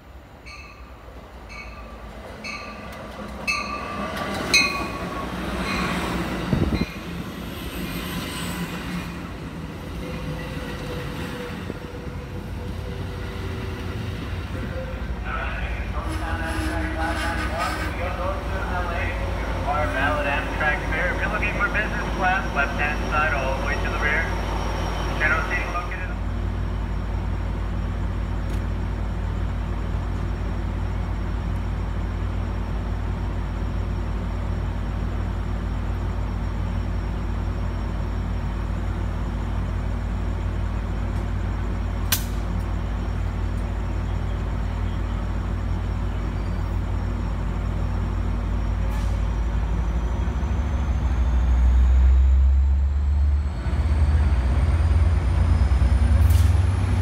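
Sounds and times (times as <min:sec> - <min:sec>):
diesel train engine rumbling: 0:00.0 - 0:57.0
sharp click: 0:42.1 - 0:42.5.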